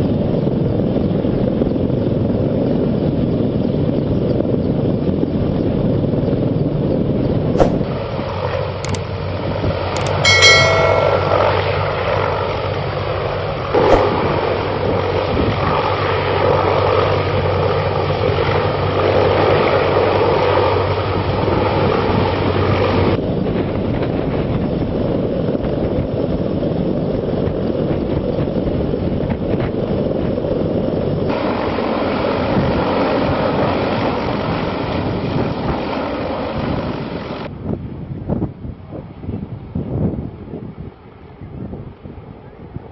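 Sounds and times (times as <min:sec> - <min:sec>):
helicopter rotor and turbine: 0:00.0 - 0:37.6
short high tone: 0:10.0 - 0:11.9.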